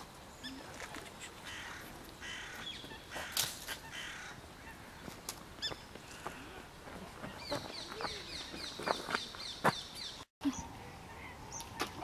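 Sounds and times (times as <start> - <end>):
harsh rasping bird calls: 0.4 - 6.6.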